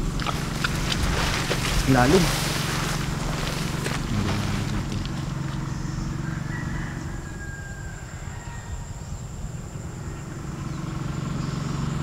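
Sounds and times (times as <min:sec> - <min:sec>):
rice plants rustling: 0:00.0 - 0:05.7
low engine hum: 0:00.0 - 0:12.0.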